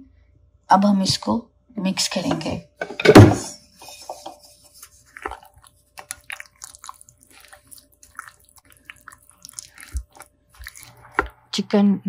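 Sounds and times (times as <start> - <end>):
spatula stirring wet marinade: 3.8 - 11.6.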